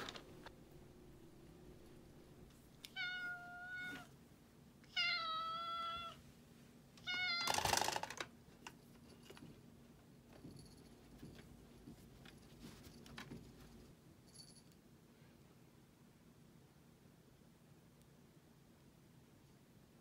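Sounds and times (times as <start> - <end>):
kitten meowing: 2.9 - 4.1.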